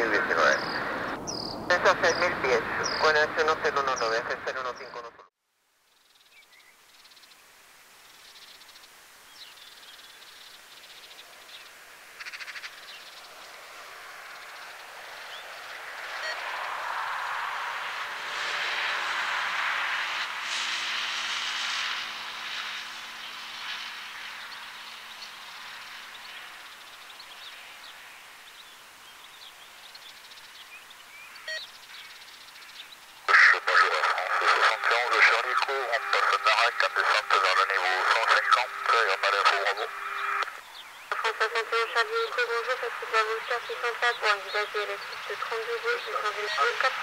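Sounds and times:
small birds chirping: 0.0 - 5.1, 24.3 - 47.0
jet aircraft noise: 0.0 - 5.2, 13.3 - 26.7, 33.2 - 47.0
faint steady hiss: 1.7 - 15.8, 24.0 - 47.0.

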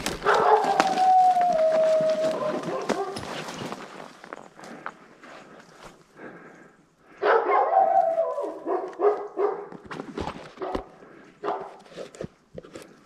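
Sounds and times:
wolf-like howls and yips: 0.2 - 3.4, 7.3 - 9.2.

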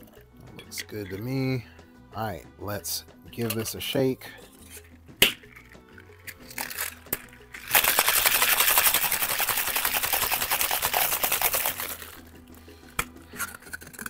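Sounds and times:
ice rattling in cocktail shaker: 5.6 - 12.4, 13.3 - 14.0.

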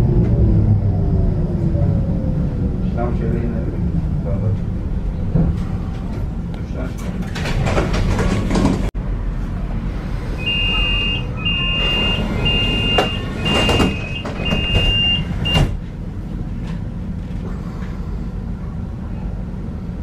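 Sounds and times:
low tram hum: 0.0 - 20.0
two-note warning beeps: 10.4 - 15.6.

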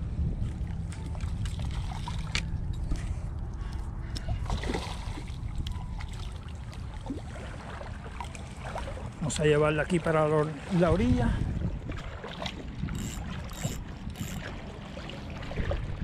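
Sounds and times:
water splashing and sloshing: 0.0 - 16.0
wind rumbling on microphone: 0.0 - 16.0.

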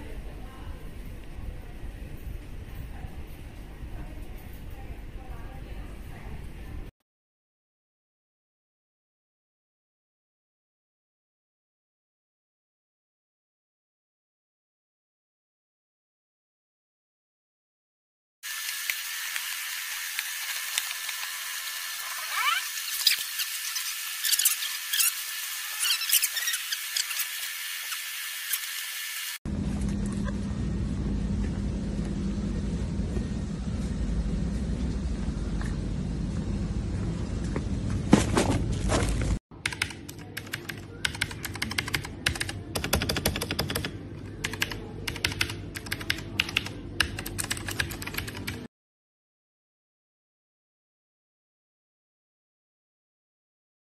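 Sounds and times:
short rising squeak: 22.0 - 28.7
outdoor noise rumble: 29.5 - 39.4
mechanical keyboard clicks: 39.6 - 48.6.

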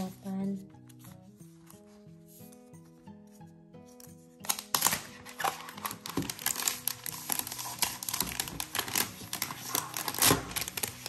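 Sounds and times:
plastic wrapping crinkling: 4.4 - 11.0.

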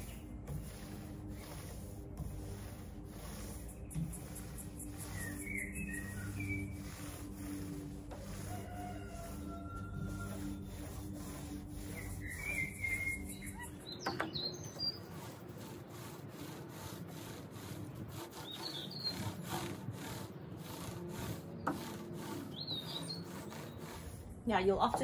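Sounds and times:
birds chirping: 0.0 - 0.5, 3.4 - 7.6, 8.5 - 15.5, 17.9 - 19.6, 20.2 - 25.0
roller rubbing on wood: 0.0 - 25.0.

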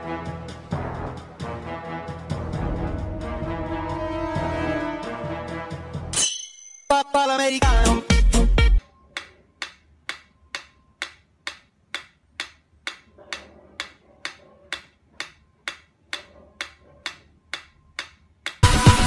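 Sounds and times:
metronome ticking: 8.8 - 18.7.

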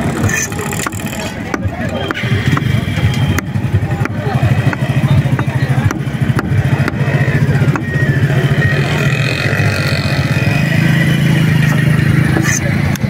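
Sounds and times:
engine running: 0.0 - 13.0
knife chopping on wooden block: 3.3 - 7.0, 7.7 - 7.9.

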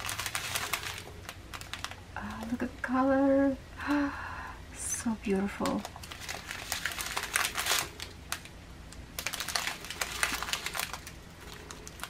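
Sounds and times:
small beads rattling in bags: 0.0 - 2.5, 5.6 - 8.5, 9.1 - 12.0
plastic bags crinkling: 0.0 - 2.7, 5.6 - 12.0.

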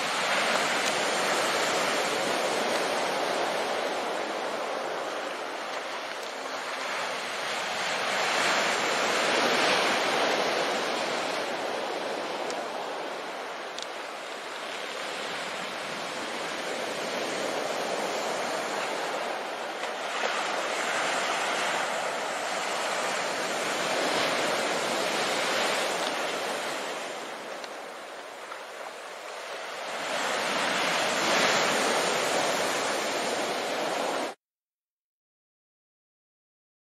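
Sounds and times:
heavy surf breaking on rocks: 0.0 - 34.4.

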